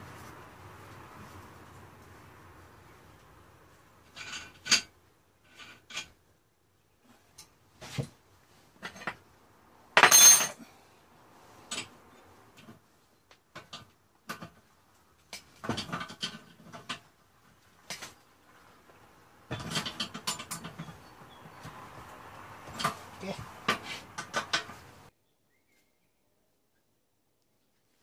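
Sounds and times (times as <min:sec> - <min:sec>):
metal clinks and rattles: 0:10.0 - 0:10.6.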